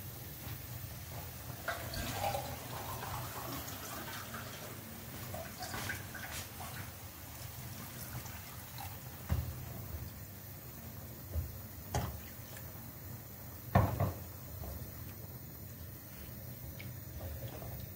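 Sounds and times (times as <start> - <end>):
water trickling and splashing: 1.2 - 12.9.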